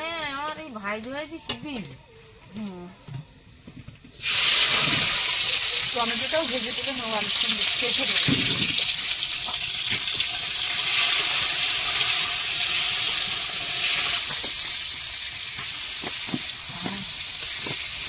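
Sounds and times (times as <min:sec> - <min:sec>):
hot oil sizzling: 0:04.1 - 0:18.0.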